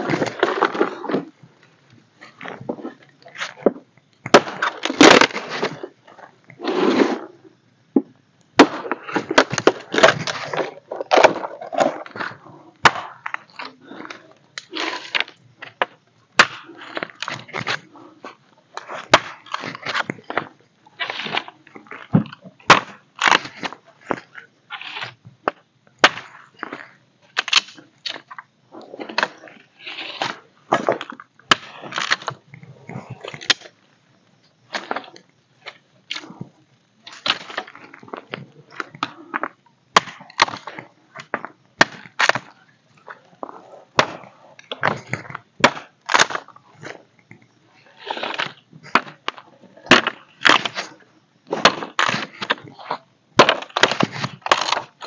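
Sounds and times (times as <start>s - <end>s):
rustling and scraping: 0.0s - 7.4s, 8.8s - 25.6s
bamboo cracking: 27.4s - 28.3s, 44.0s - 46.6s, 51.6s - 55.0s.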